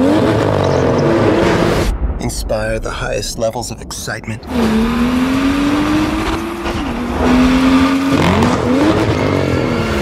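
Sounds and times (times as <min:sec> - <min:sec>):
car engine revving: 0:00.0 - 0:01.9, 0:04.4 - 0:10.0.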